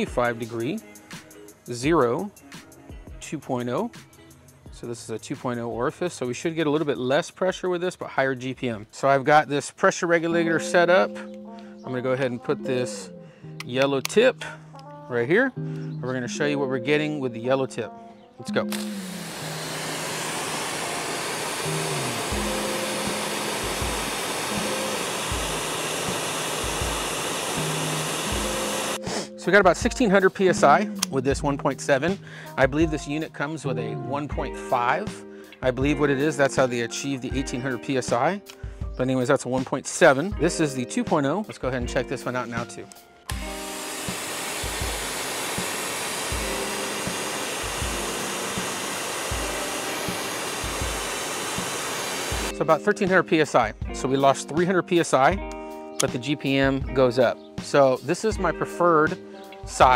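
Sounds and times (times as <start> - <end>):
pressure washer motor and pump: 18.7 - 29.1, 43.3 - 52.6
pressure washer spray hissing: 18.7 - 29.3, 43.3 - 52.5.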